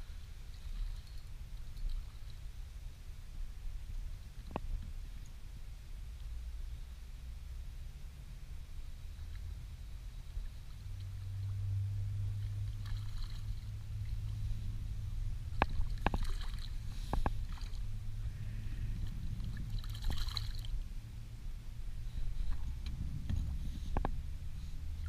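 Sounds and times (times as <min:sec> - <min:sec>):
low steady hum: 0:00.0 - 0:25.0
water lapping against boat hull: 0:09.2 - 0:20.9.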